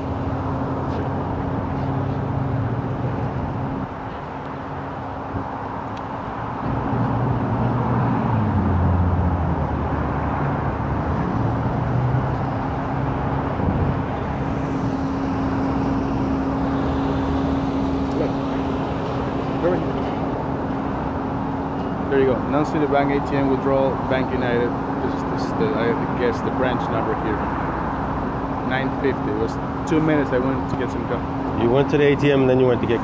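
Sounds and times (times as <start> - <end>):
truck engine idling: 12.5 - 33.0.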